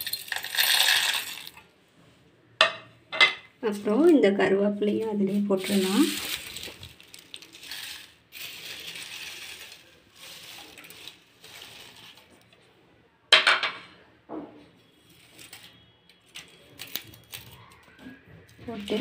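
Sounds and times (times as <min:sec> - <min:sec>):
dry leaves crackling and rustling: 0:05.0 - 0:12.4, 0:16.3 - 0:17.6, 0:18.7 - 0:19.0.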